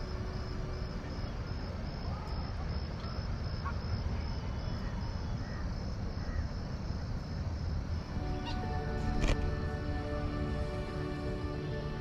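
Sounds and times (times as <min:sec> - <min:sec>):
constant low rumble: 0:00.0 - 0:12.0
insect chirping: 0:00.0 - 0:12.0
faint bird calls: 0:02.0 - 0:06.6, 0:08.2 - 0:09.2.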